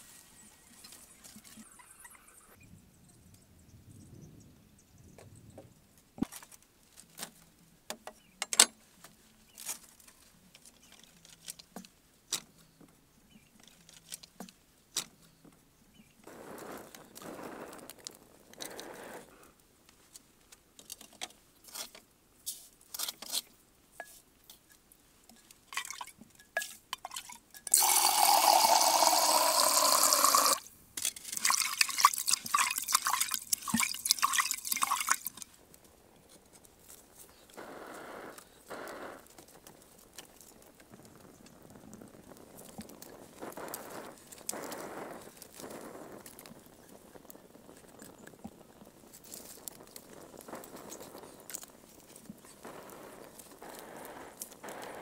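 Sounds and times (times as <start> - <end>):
water poured into vessel: 27.0 - 30.6, 31.2 - 35.4
hand scrubbing clay pot: 31.2 - 35.4.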